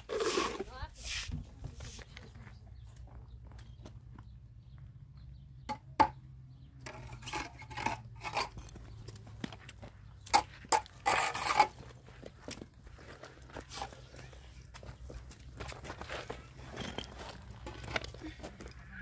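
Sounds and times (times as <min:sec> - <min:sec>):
rubble scraping rush: 0:00.0 - 0:02.1, 0:06.8 - 0:14.4, 0:15.0 - 0:19.0.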